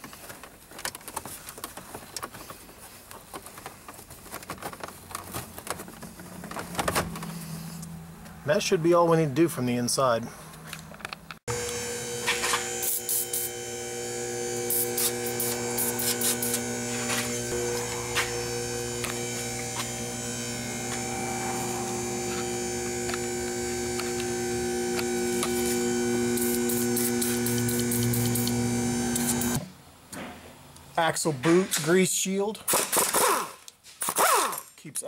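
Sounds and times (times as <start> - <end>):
aerosol can spraying: 12.5 - 13.6, 14.7 - 18.4, 25.3 - 29.6.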